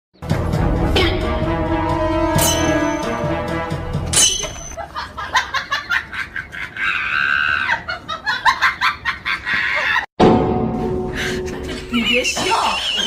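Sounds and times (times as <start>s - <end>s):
music: 0.2s - 4.8s, 10.2s - 13.0s
person laughing: 4.8s - 10.1s.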